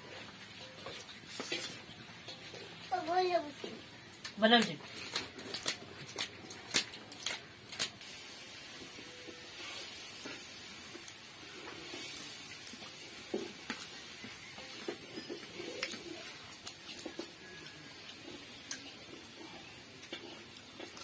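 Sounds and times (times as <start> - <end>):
faint steady hiss: 8.0 - 21.0.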